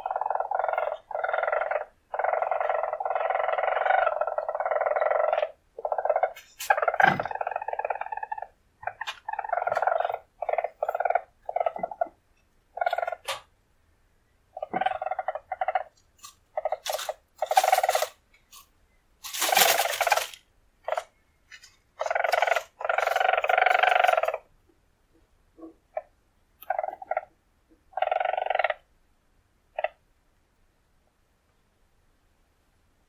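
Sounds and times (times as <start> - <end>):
weasel trilling: 0.0 - 13.4, 14.6 - 18.2, 19.2 - 21.2, 22.0 - 24.5, 26.0 - 27.3, 27.9 - 28.9.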